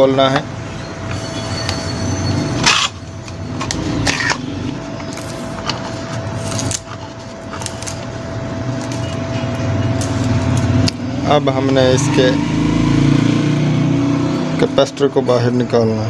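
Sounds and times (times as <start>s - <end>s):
steady engine-like drone: 0.0s - 16.0s.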